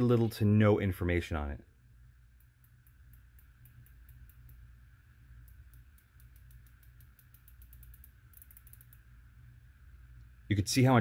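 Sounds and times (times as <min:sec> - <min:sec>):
faint sharp turret clicks: 0:05.4 - 0:09.1.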